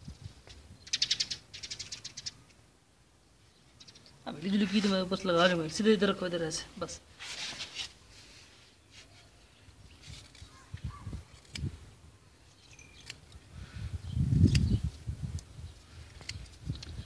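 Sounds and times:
scissors snipping hair: 11.3s - 11.7s.

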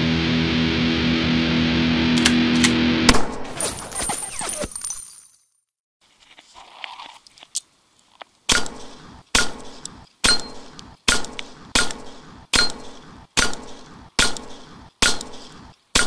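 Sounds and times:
metallic ring of steel targets: 8.5s - 16.0s
pistol shots echoing: 8.5s - 16.0s.

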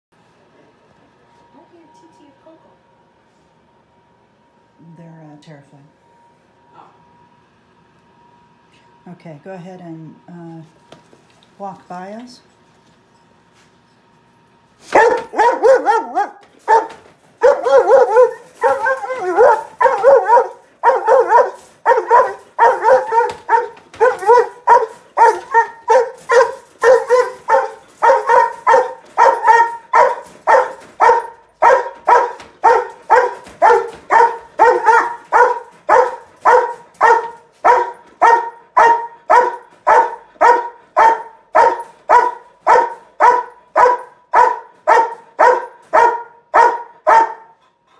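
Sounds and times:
dog barking in a crate: 14.8s - 47.6s.

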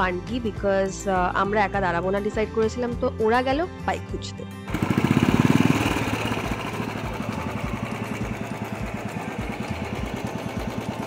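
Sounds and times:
motorcycle engine idling: 4.7s - 11.0s.

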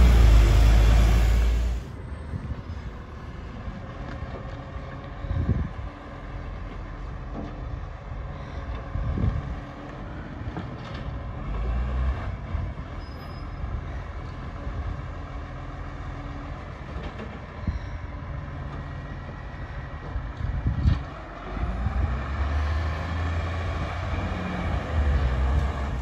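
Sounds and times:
low rumbles: 0.0s - 2.6s
distant garbage truck engine: 0.0s - 26.0s.

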